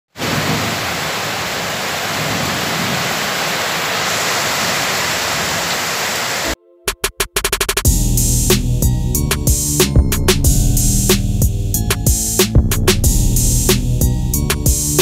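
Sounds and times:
heavy rain: 0.1 - 6.6.

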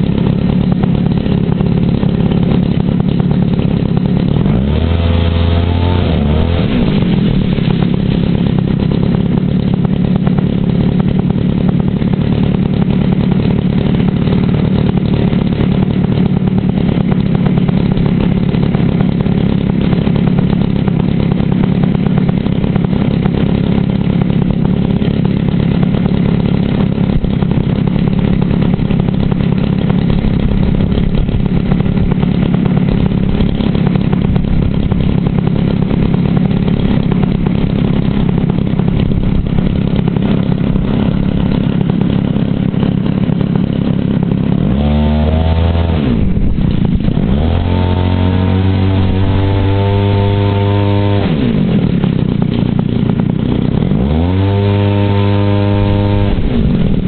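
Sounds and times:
model airplane engine running: 0.0 - 57.0.

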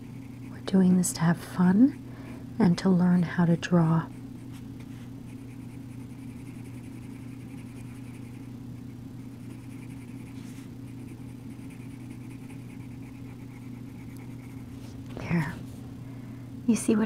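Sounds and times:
steady low hum: 0.0 - 17.0
coloured pencil scratching on paper: 5.3 - 8.5, 9.4 - 14.9.

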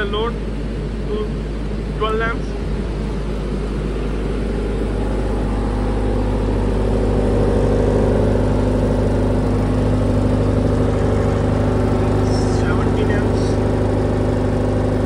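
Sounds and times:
diesel generator running: 0.0 - 15.0.

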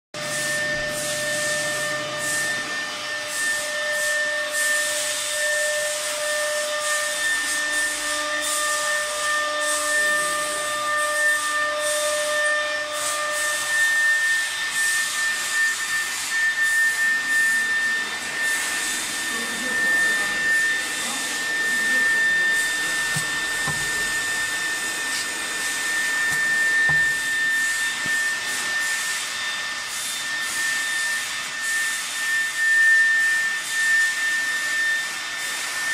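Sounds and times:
router spindle motor whining: 6.7 - 32.8
bit cutting into wood: 19.7 - 28.2.

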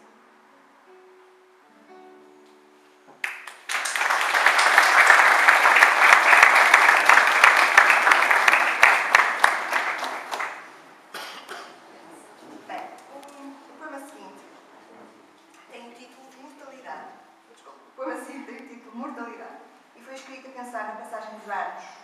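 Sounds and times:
soft background music: 0.0 - 3.2, 12.8 - 22.0
audience applauding: 3.2 - 10.8.

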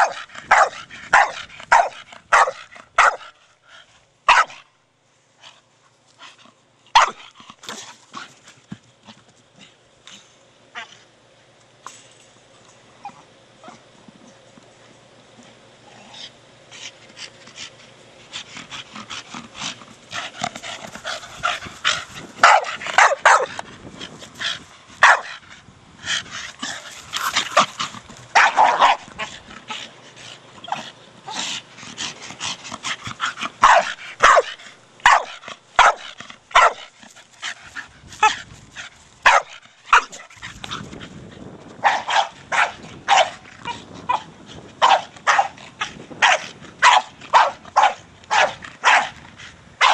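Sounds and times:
dog barking and yipping: 0.0 - 3.3, 4.3 - 4.6, 7.0 - 7.3, 22.4 - 23.6, 25.0 - 25.4, 27.2 - 29.3, 33.6 - 36.9, 39.2 - 40.2, 41.8 - 43.4, 44.1 - 45.6, 46.2 - 49.2.

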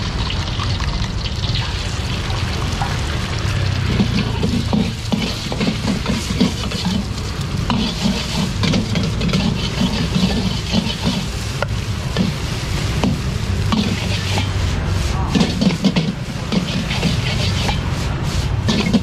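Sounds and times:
rice sizzling: 0.0 - 19.0
metal spatula scraping a wok: 2.8 - 19.0.

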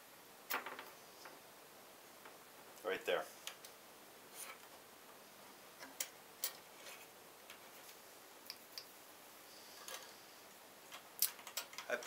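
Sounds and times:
pliers and wire clicking: 10.9 - 12.0.

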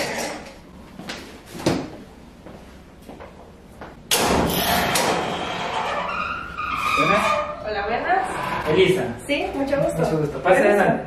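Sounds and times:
sliding door rolling scrape: 4.5 - 9.2.

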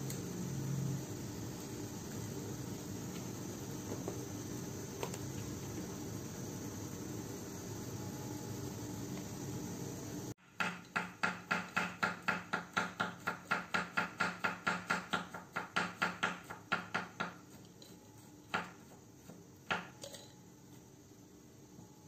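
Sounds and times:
steady hiss: 0.0 - 22.0.

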